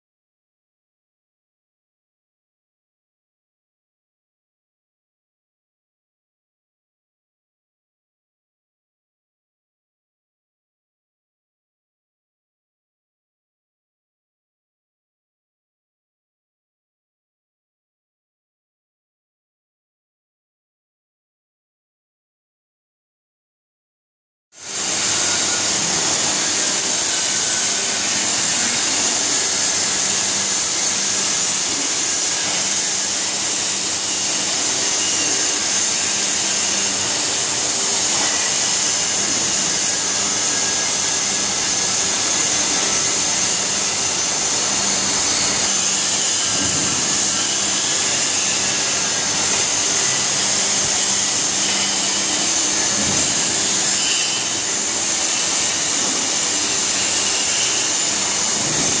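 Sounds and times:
loud constant machinery hiss: 24.6s - 59.0s.

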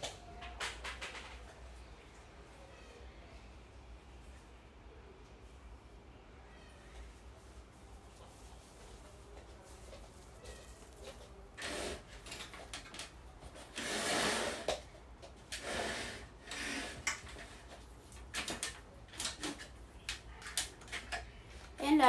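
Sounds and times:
cloth rubbing a fan blade: 13.5s - 14.7s.

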